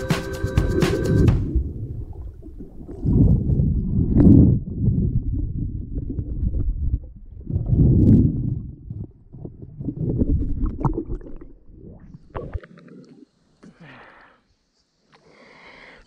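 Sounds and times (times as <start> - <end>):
muffled underwater water rushing: 0.6 - 13.4.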